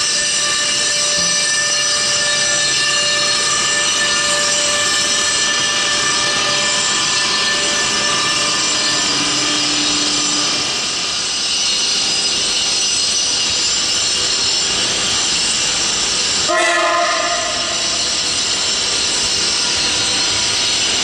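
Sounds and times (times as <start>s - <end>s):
locomotive horn: 0.0s - 10.3s, 16.5s - 18.0s
trains rushing past: 0.0s - 21.0s.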